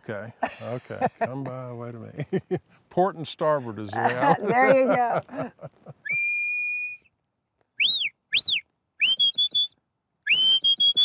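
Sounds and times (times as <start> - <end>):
sheepdog whistle: 6.1 - 7.1, 7.8 - 11.0.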